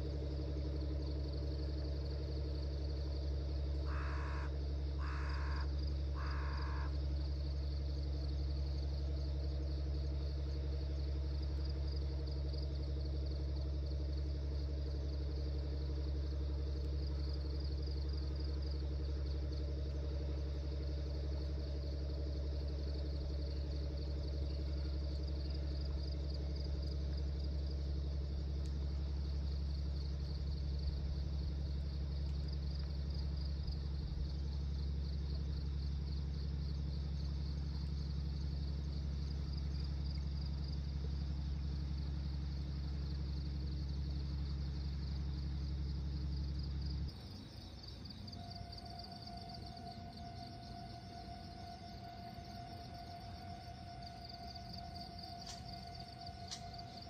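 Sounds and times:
constant low hum: 0.0s - 57.0s
insects chirring: 0.0s - 57.0s
crow cawing: 3.8s - 7.2s.

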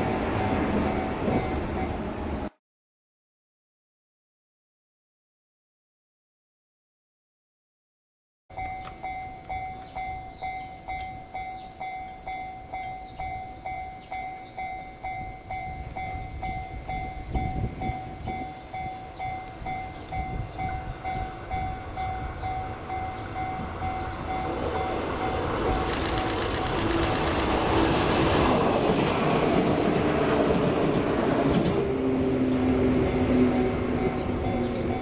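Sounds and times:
train rumble: 0.0s - 2.5s, 8.5s - 35.0s
level crossing bell ringing: 8.5s - 25.5s.

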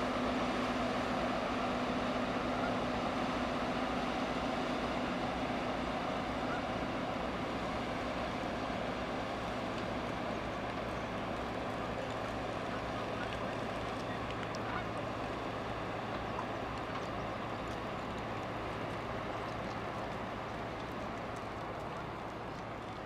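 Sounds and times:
ship engines droning: 0.0s - 23.0s.

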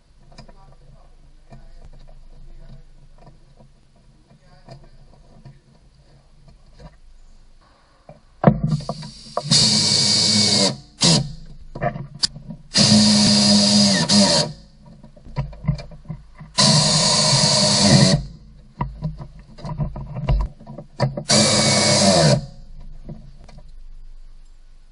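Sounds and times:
pneumatic wrench bursts: 8.6s - 11.4s, 12.7s - 14.6s, 16.5s - 18.4s, 21.2s - 22.6s.

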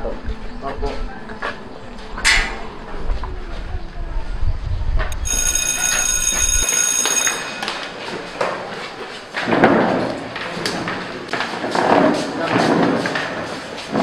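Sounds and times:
electric bell ringing: 5.1s - 8.6s.

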